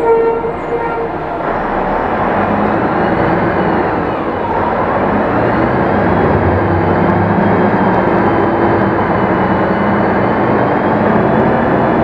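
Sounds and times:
bus engine running: 0.0 - 12.0
road noise: 0.0 - 12.0.

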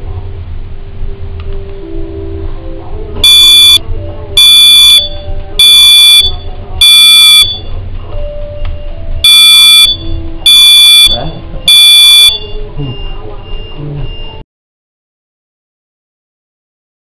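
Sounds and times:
smoke alarm beeping: 3.2 - 3.8, 4.4 - 7.7, 8.8 - 14.4.

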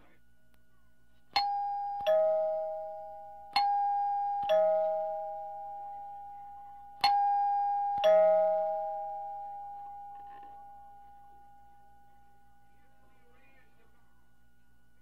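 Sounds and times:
two-note ding-dong chime: 1.4 - 12.7.

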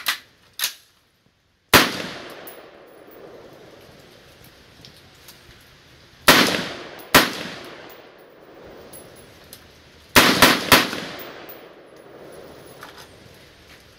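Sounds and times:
rifle shots echoing: 1.7 - 3.8, 6.3 - 9.2, 10.2 - 12.8.

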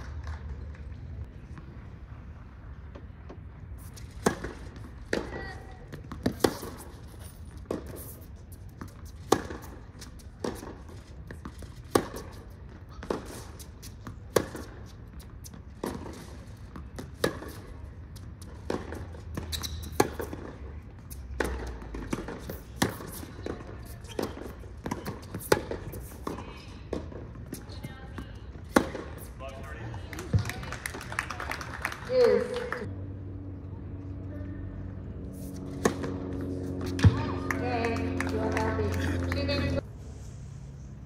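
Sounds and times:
tennis ball struck by racquets: 4.0 - 8.2, 8.8 - 17.8, 18.4 - 29.3, 35.6 - 37.4.

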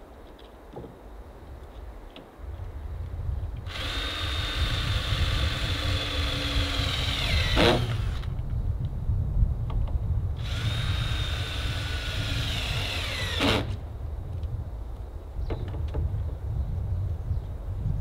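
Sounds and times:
cordless drill whine: 3.7 - 8.3, 10.4 - 13.8.

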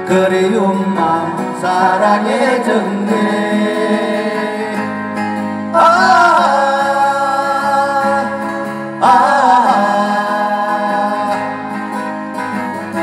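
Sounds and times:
acoustic guitars strumming: 0.0 - 13.0.

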